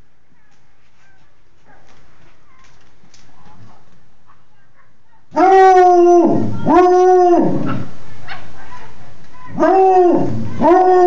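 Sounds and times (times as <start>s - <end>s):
dog howling: 5.4s - 7.9s, 9.5s - 11.0s.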